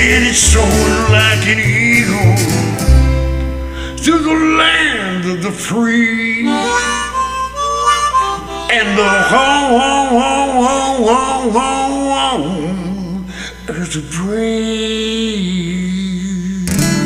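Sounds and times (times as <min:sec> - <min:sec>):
harmonica playing: 0:00.0 - 0:04.3, 0:06.4 - 0:11.3.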